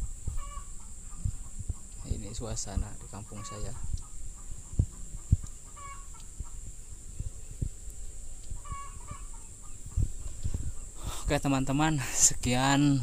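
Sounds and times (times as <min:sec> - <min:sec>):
dull low thumps: 0:00.0 - 0:02.0, 0:03.8 - 0:08.8, 0:09.8 - 0:11.1
chickens clucking: 0:00.0 - 0:11.4.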